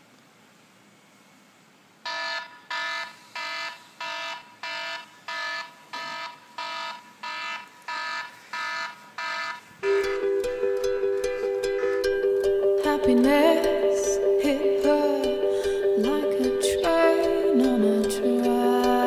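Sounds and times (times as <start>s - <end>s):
electronic alarm beeping: 2.1s - 12.7s.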